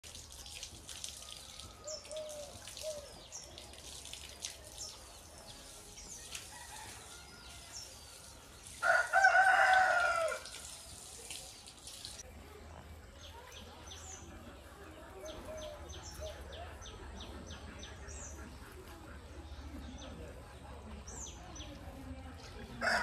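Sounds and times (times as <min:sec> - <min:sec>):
small birds chirping: 0:00.2 - 0:23.0
rooster crowing: 0:08.8 - 0:10.5.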